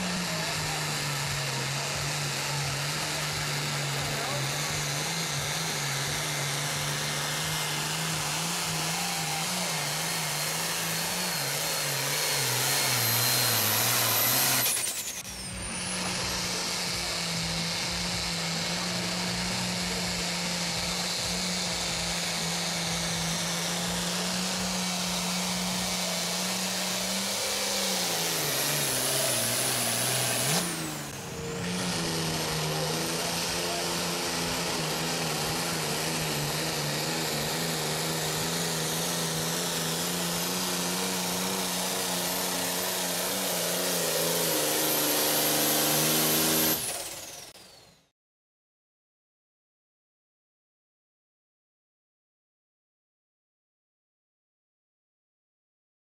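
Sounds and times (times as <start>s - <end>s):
high whine: 0.0s - 38.0s
diesel tractor engine under load: 0.0s - 47.9s.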